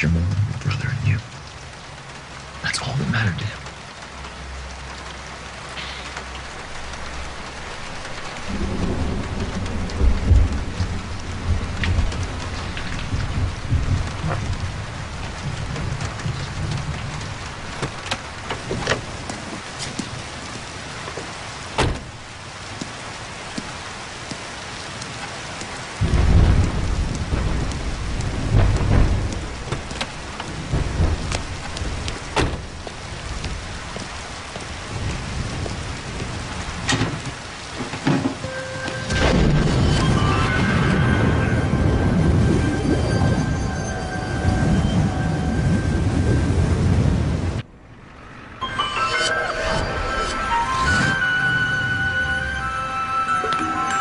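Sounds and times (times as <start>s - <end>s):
steady rain: 0.0s - 54.0s
thunder rolling: 6.7s - 20.4s, 26.0s - 48.5s
thunder cracks: 8.4s - 18.0s, 26.0s - 33.8s, 39.1s - 47.9s.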